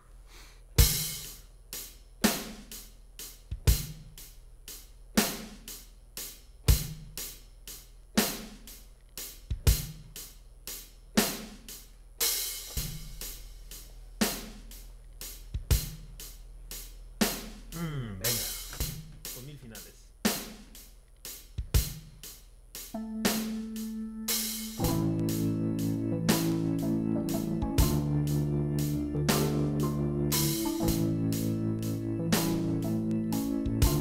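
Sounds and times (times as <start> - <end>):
electronic drum beat: 0.8 - 34.0.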